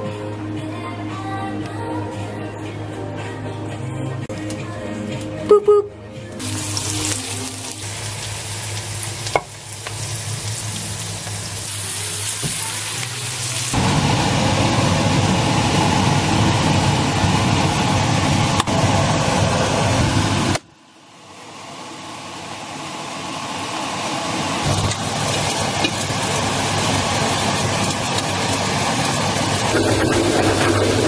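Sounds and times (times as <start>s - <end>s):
stew liquid sizzling in pan: 6.4s - 14.2s, 24.6s - 31.0s
onion sizzling in frying pan: 6.4s - 17.8s, 24.6s - 31.0s.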